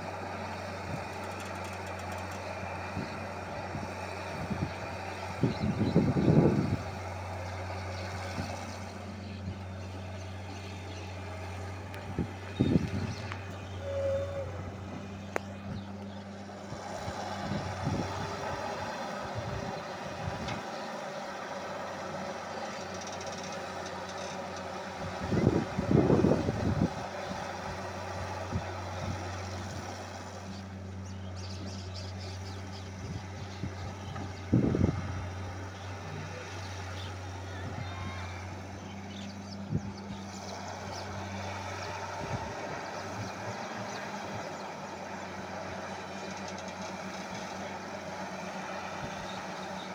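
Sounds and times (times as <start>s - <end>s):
excavator diesel engine running: 0.0s - 49.9s.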